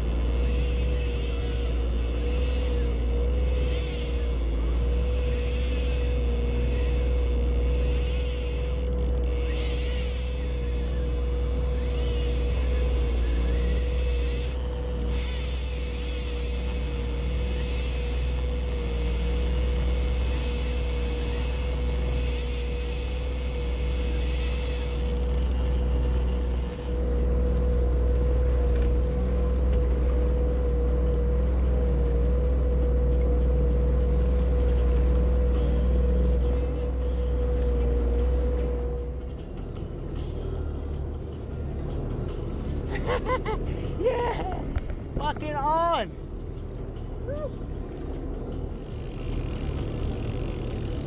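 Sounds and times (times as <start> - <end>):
high thin whine: 0.0 - 31.3, 48.4 - 51.0
jet ski engine drone: 0.0 - 51.0.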